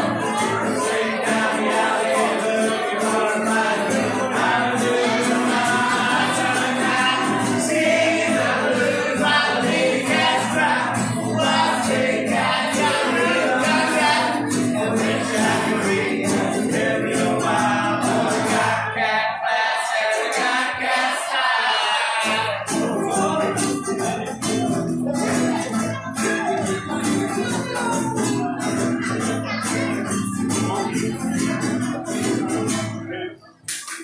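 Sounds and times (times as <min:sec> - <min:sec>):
voices singing together: 0:00.0 - 0:33.6
bass: 0:03.0 - 0:18.9, 0:22.4 - 0:33.2.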